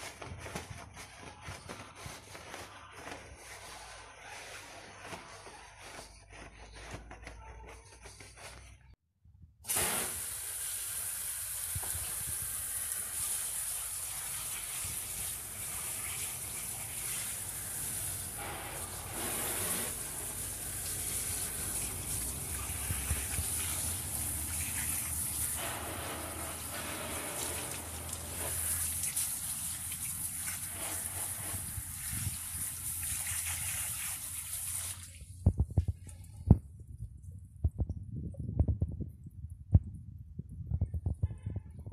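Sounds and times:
brush scrubbing wheel rim: 0.0 - 7.3, 12.2 - 35.0
water spray rinsing: 9.7 - 35.4.

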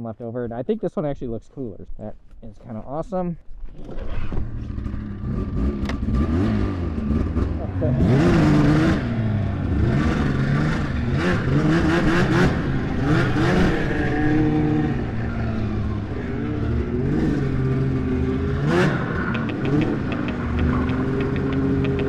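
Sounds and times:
snowmobile two-stroke engine revving: 4.5 - 22.0.

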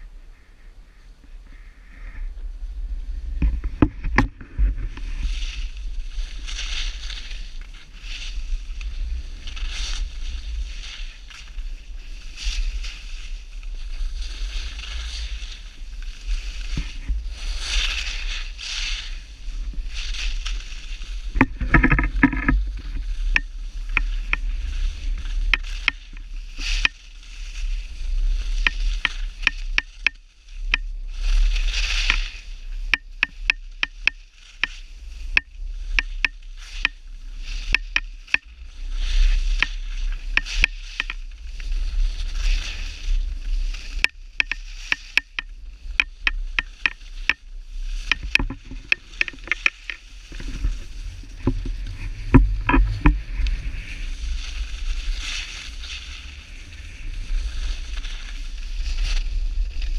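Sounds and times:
wind rumble on microphone: 0.0 - 59.9
skis scraping on snow: 1.0 - 59.9
sharp clicks: 28.6 - 30.8, 32.9 - 34.8, 35.4 - 37.0, 40.4 - 41.2, 44.0 - 47.4.

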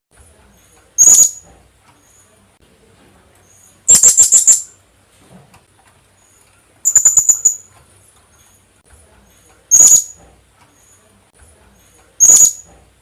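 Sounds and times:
parrot calling shrilly: 1.0 - 1.4, 3.9 - 4.7, 6.9 - 7.7, 9.7 - 10.2, 12.2 - 12.6.

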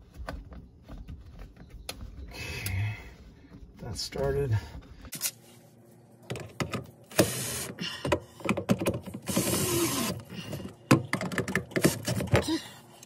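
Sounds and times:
cordless drill running: 7.1 - 7.7, 9.3 - 10.2.

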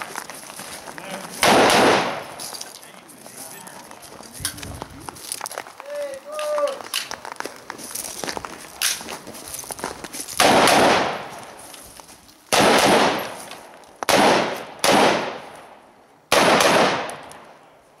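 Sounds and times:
gunshots with echo: 1.4 - 2.4, 10.4 - 11.3, 12.5 - 13.4, 14.1 - 17.3.

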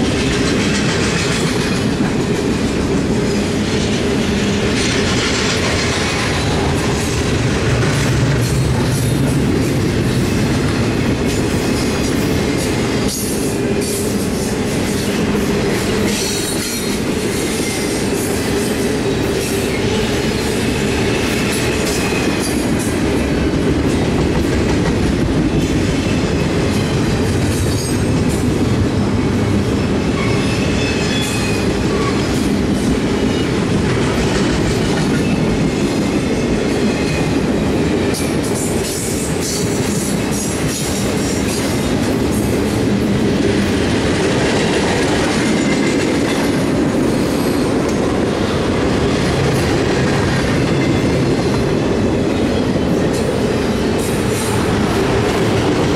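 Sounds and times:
clatter over rail joints: 0.0 - 14.0
train wheels rumbling on rail: 0.0 - 55.9.

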